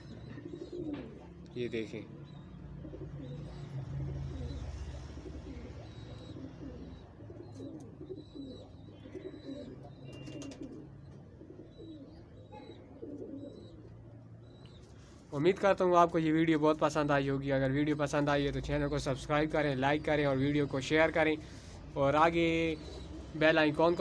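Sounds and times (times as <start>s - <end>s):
pigeons cooing: 0.0s - 15.3s, 17.4s - 24.0s.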